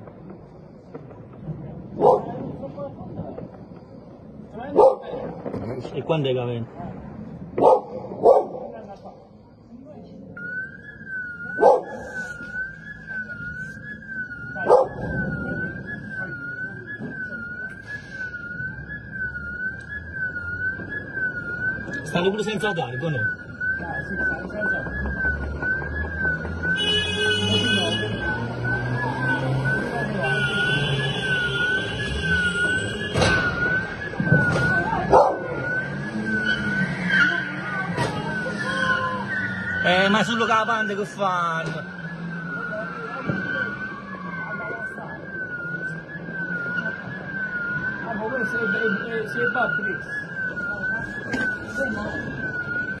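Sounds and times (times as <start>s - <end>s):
sharp bangs: 32.0s - 36.7s.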